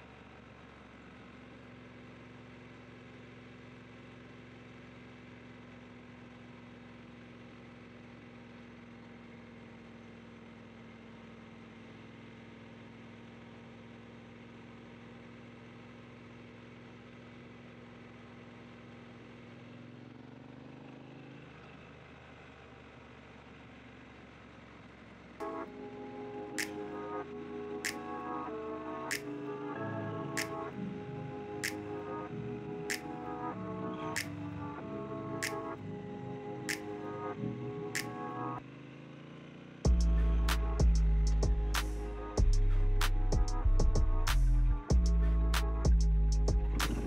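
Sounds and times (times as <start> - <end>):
motorcycle engine running: 0.0 - 47.0.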